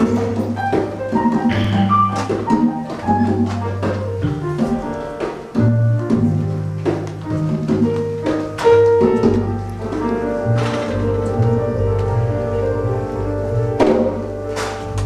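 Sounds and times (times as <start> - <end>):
hand percussion: 0.0 - 11.6
bass notes: 0.0 - 15.0
piano chords: 0.0 - 15.0.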